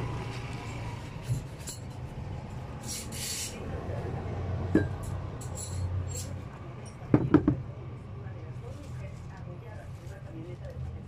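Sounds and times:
metallic clicks and clinks: 0:04.9 - 0:07.0.

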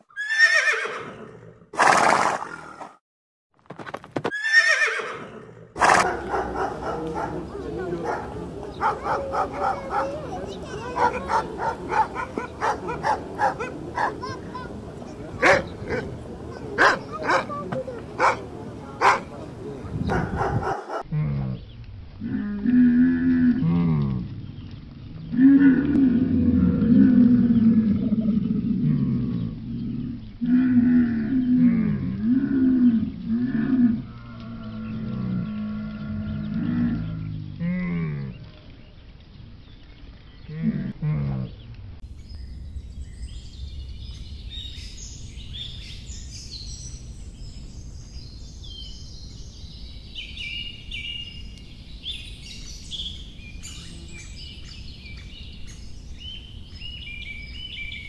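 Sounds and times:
puppy barking: 0:05.8 - 0:14.4, 0:15.4 - 0:16.1, 0:16.8 - 0:17.6, 0:18.2 - 0:19.3, 0:20.1 - 0:21.1
puppies yipping: 0:05.8 - 0:14.6, 0:16.8 - 0:19.3
camels calling: 0:05.8 - 0:19.4.

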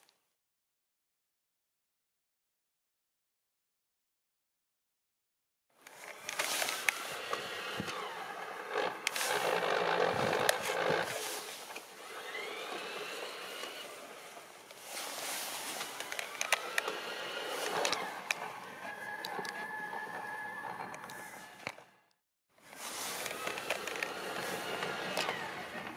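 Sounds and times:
snowplow scraping through snow: 0:06.0 - 0:21.9, 0:22.6 - 0:25.9
electric motor whine: 0:06.0 - 0:22.0, 0:22.7 - 0:25.9.

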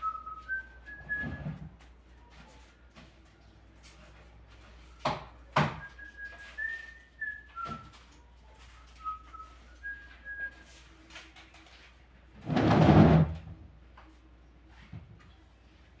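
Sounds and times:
whistled tune: 0:00.0 - 0:01.6, 0:05.7 - 0:08.0, 0:08.9 - 0:10.8.

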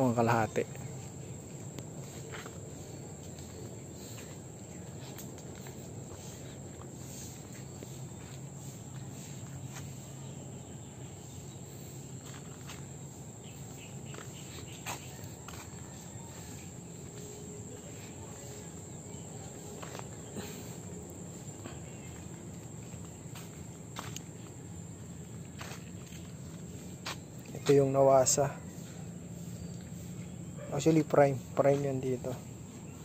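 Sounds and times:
insect chorus: 0:00.0 - 0:33.0.

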